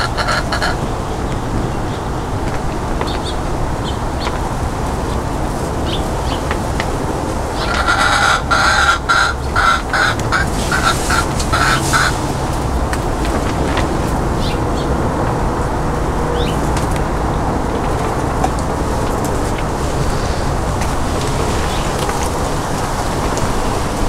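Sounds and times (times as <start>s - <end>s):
chicken clucking: 0.0s - 0.8s, 7.6s - 12.3s.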